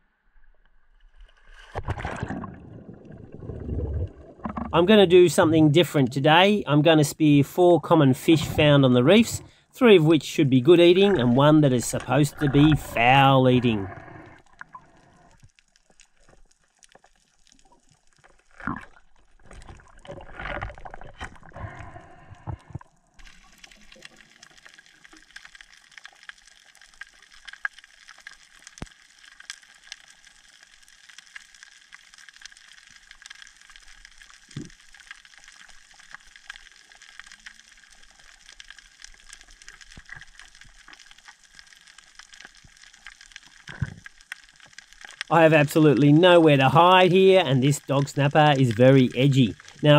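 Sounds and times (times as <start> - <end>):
underwater reef crackling: 1.0 - 49.9
gurgling surges of water and bubbles: 1.1 - 6.4, 10.6 - 29.2, 49.1 - 49.9.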